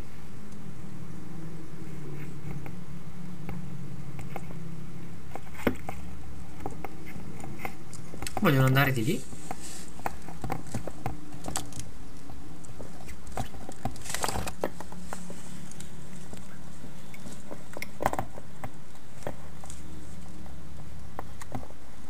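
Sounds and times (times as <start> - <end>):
steady low hum: 0.0 - 22.0
turtle claws scratching plastic: 5.3 - 21.8.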